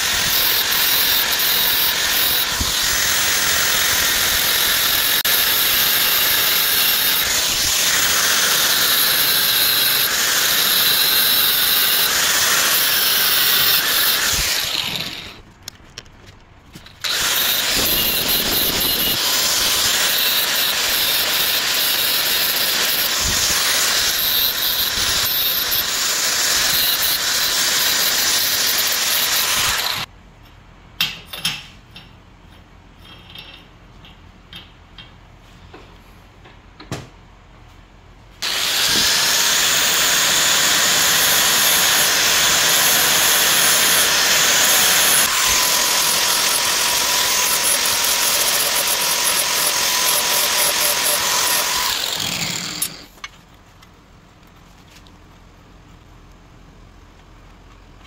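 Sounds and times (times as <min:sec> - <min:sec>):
angle grinder sanding: 0:00.0 - 0:15.4, 0:17.0 - 0:30.1, 0:38.4 - 0:53.1
power tool grinding steel: 0:00.0 - 0:15.4, 0:17.0 - 0:30.1, 0:38.4 - 0:53.1.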